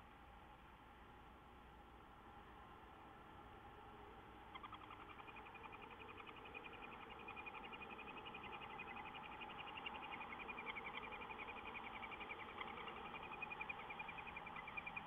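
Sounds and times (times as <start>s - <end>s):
owl chicks chittering: 4.0s - 15.0s.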